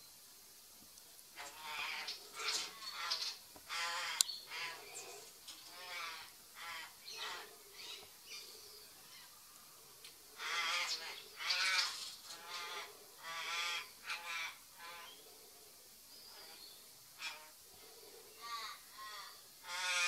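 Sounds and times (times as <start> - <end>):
crow cawing: 5.8 - 7.5, 10.4 - 15.0, 18.4 - 20.0.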